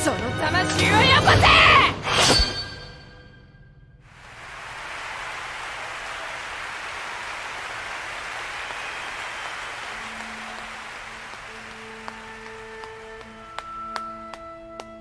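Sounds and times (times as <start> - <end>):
audience applause: 4.1 - 15.0.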